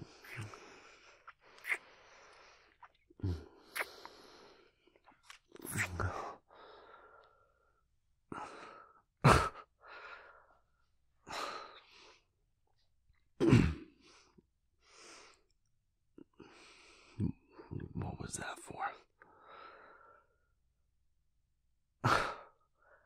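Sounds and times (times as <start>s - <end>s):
man breathing and sighing: 0.0s - 5.0s, 5.6s - 12.3s, 22.0s - 23.0s.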